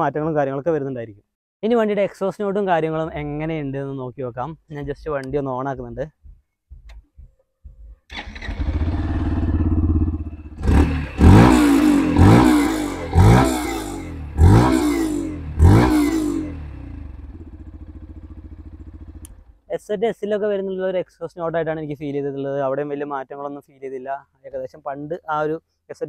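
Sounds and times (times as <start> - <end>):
motorcycle engine idling: 7.7 - 19.6
motorcycle throttle revs: 8.1 - 19.5.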